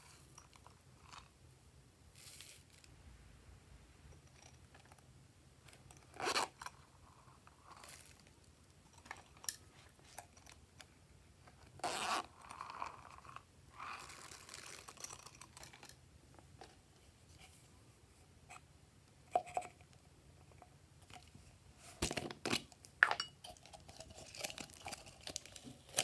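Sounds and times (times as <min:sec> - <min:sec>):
crinkly rustling: 0:23.5 - 0:26.0.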